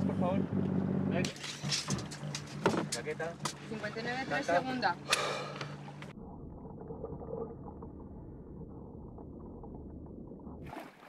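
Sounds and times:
muffled underwater rumble: 2.0s - 10.8s.

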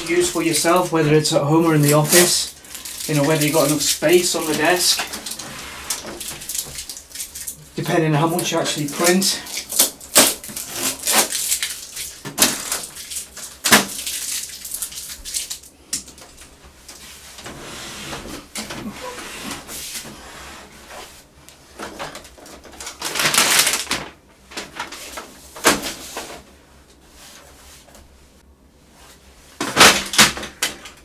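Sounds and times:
packing tape ripping: 1.8s - 7.6s, 8.8s - 15.6s, 22.4s - 24.0s.

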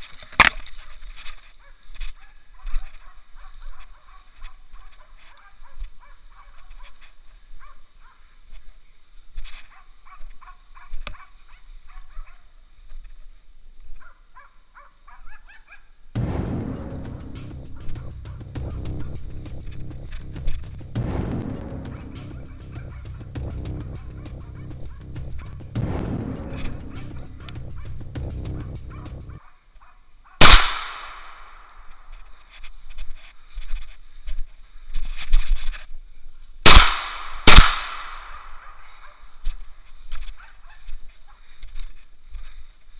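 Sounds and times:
dog barking: 1.6s - 7.0s, 7.6s - 8.3s, 9.7s - 12.5s, 14.0s - 15.9s, 28.6s - 30.4s, 38.6s - 39.3s, 40.4s - 41.5s
sharp crack: 16.2s - 29.4s, 30.4s - 32.0s, 36.7s - 38.9s
gunshots with ringing echo: 25.7s - 29.4s, 30.4s - 31.8s, 36.7s - 38.8s.

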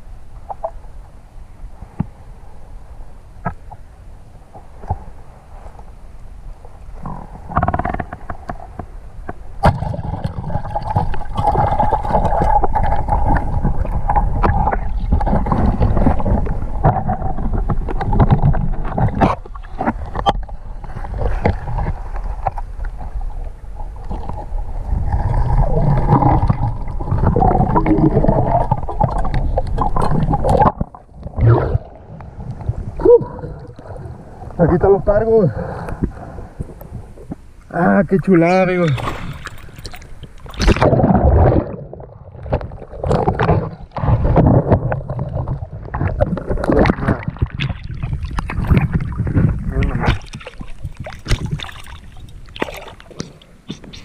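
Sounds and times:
muffled underwater rumble: 0.0s - 54.0s
water splashing: 9.6s - 35.7s, 38.2s - 54.0s.

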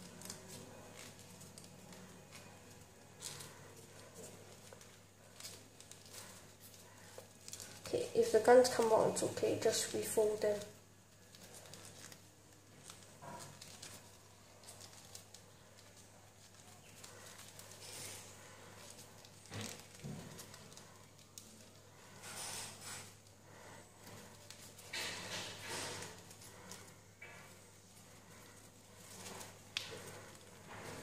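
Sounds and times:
paper crackles: 0.0s - 31.0s
paper rustling and crinkling: 0.0s - 31.0s.

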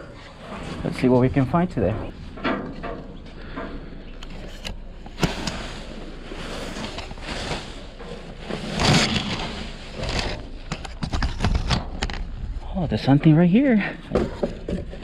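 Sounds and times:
plastic bags rustling: 4.8s - 11.4s.

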